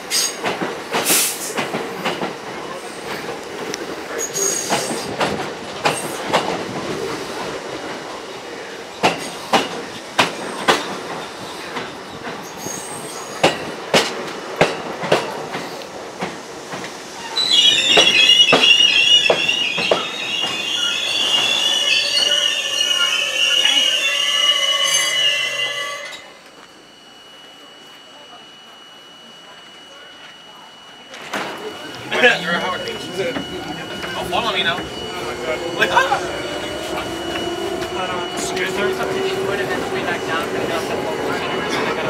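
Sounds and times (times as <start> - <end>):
train wheels clacking: 0.0 - 7.9, 9.0 - 25.2, 31.2 - 42.0
high-pitched wheel squeal: 17.2 - 26.4, 31.8 - 41.9.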